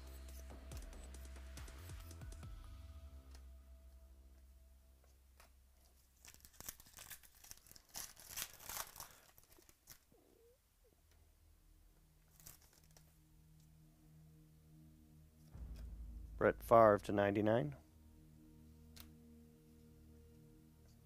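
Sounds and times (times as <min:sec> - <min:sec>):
foil wrapper tearing and crinkling: 0:05.9 - 0:10.1, 0:12.3 - 0:13.1.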